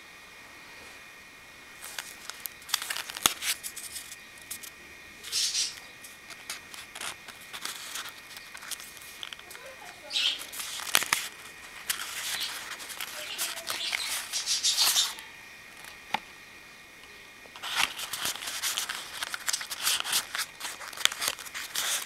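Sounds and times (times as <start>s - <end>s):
paper and card rustling: 1.8s - 15.2s, 17.6s - 22.0s.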